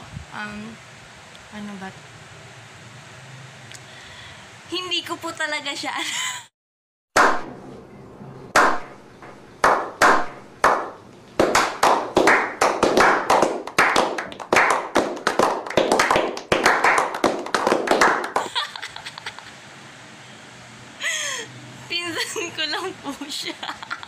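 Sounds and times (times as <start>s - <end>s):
group hand clapping: 8.6s - 8.9s, 9.6s - 18.6s.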